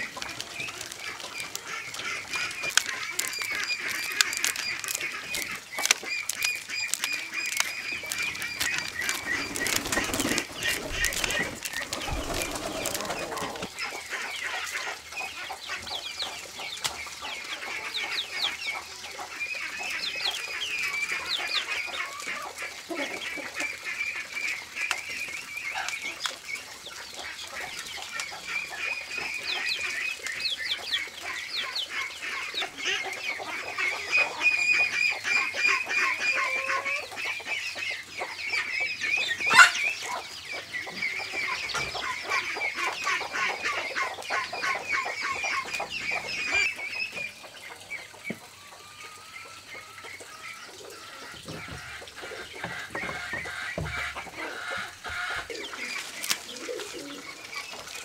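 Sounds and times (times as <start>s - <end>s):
corn kernels crackling: 0.0s - 15.9s, 54.9s - 58.0s
chickens clucking: 0.0s - 58.0s.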